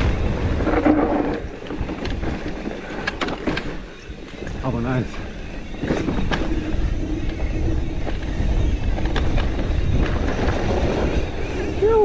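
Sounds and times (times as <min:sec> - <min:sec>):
bike knocks and rattles: 0:00.0 - 0:12.0
bike tyres rumbling on dirt: 0:00.0 - 0:12.0
wind on microphone: 0:00.0 - 0:12.0.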